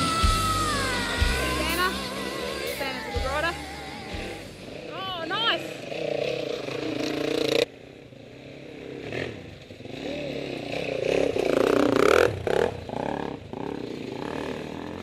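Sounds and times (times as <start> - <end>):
background music: 0.0 - 4.9
dirt bike engines revving: 0.0 - 15.0.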